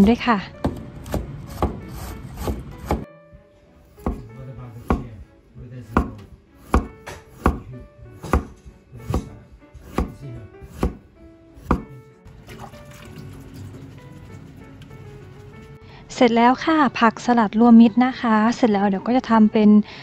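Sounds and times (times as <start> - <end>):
knife slicing on wooden board: 0.7 - 3.1, 4.0 - 5.1, 5.9 - 11.0, 11.6 - 12.0.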